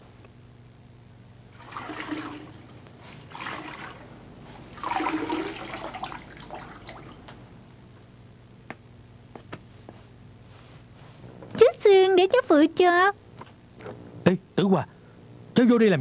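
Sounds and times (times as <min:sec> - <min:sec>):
water splashing and pouring: 0:01.6 - 0:04.0, 0:04.7 - 0:07.2.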